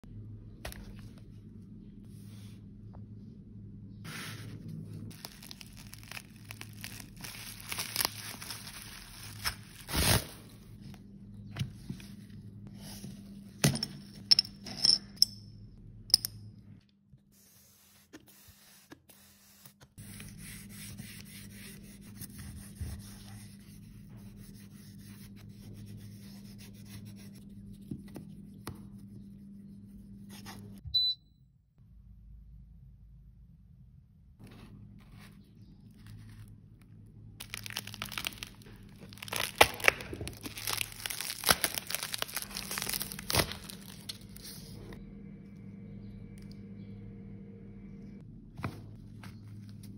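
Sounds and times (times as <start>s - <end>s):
low steady hum: 0.0s - 49.9s
wrapping crinkling: 5.1s - 10.6s, 37.4s - 44.7s.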